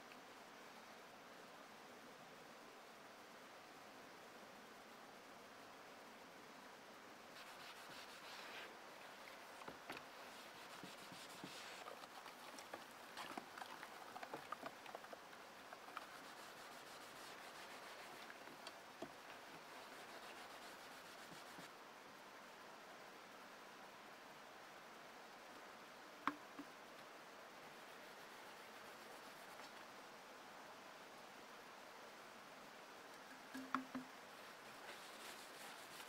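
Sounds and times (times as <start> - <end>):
soft rubbing: 7.3 - 18.6, 19.2 - 21.7, 27.7 - 29.9, 33.3 - 36.0.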